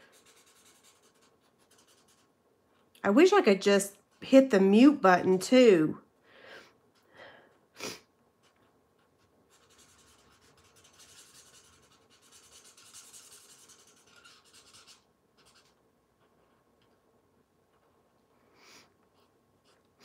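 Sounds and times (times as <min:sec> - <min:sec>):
marker scratching on card: 0:00.0 - 0:02.4, 0:08.4 - 0:16.4.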